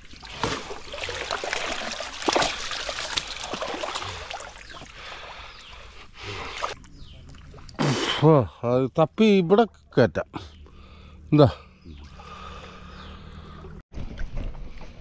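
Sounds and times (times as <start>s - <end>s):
shallow water splashing: 0.0s - 8.2s.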